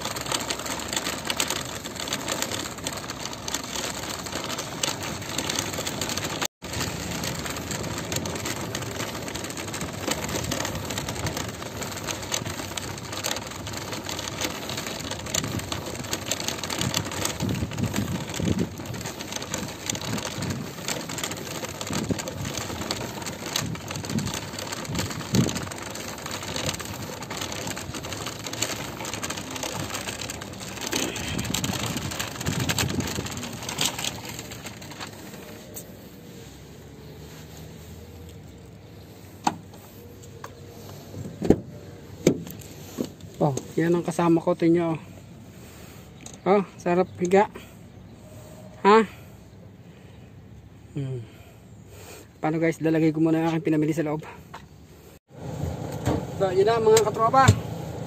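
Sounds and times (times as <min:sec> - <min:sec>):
cart bumps: 0:00.0 - 0:35.9, 0:40.9 - 0:43.6
shopping cart rattling on asphalt: 0:00.0 - 0:49.3, 0:52.0 - 0:58.0.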